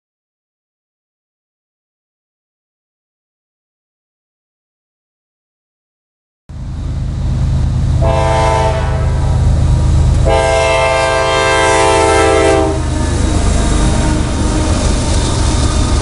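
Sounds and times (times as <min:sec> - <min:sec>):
diesel engine rumble: 0:06.5 - 0:16.0
locomotive air horn blasts: 0:08.0 - 0:09.4, 0:10.2 - 0:14.8.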